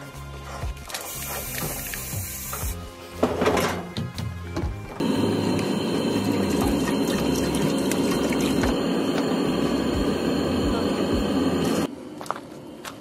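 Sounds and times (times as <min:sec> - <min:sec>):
water pouring into metal saucepan: 0:06.1 - 0:08.7.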